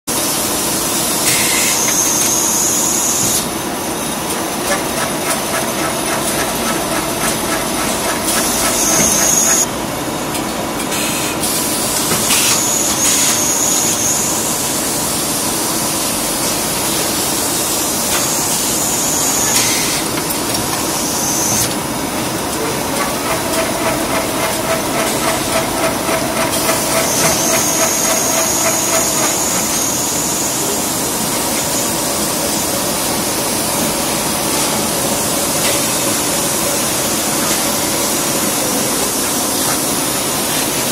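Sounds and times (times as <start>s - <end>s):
machine drone with fast ticking: 4.2s - 9.7s, 22.6s - 30.7s.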